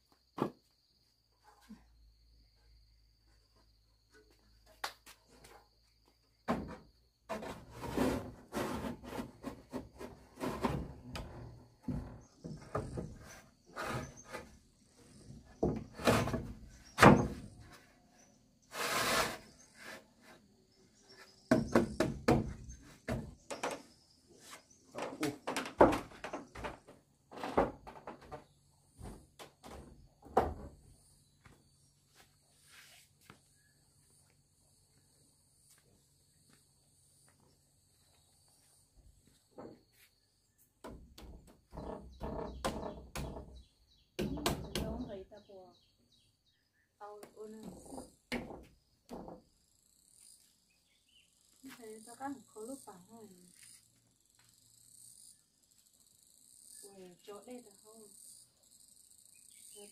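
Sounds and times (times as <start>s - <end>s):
objects knocking and scraping: 6.5s - 17.8s, 21.1s - 30.8s
insects chirring: 10.8s - 59.9s.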